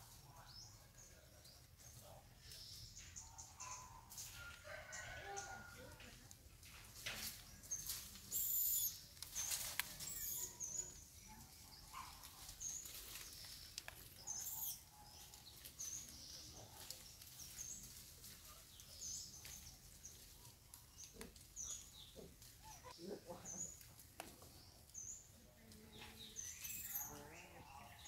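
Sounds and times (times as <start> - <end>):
sharp clicks and rustles: 6.0 - 10.4.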